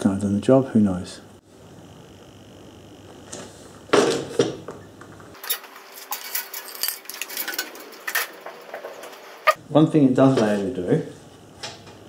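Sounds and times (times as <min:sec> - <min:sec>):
metallic clinks and rattles: 0:05.4 - 0:09.6.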